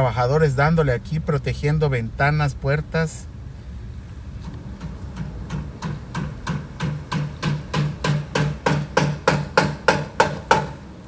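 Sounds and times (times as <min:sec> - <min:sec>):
hammer striking plywood: 0:04.8 - 0:10.8.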